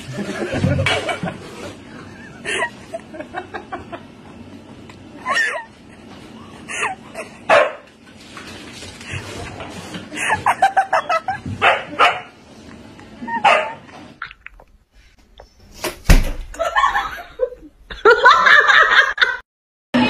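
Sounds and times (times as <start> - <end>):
dog barking and yipping: 7.5 - 7.8, 11.6 - 12.3, 13.4 - 13.8
sharp loud thump: 15.8 - 16.5.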